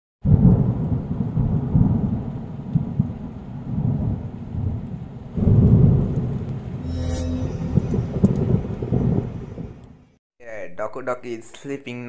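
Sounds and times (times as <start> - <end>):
thunder rumbling: 0.2 - 6.9, 7.6 - 10.0.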